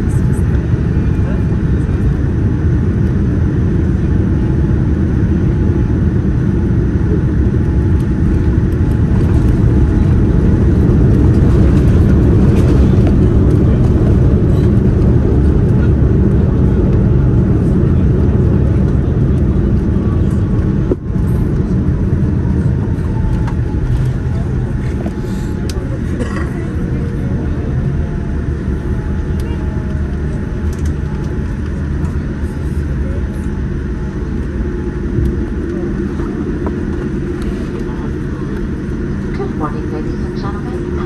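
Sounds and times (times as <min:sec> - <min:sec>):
airplane cabin rumble: 0:00.0 - 0:41.0.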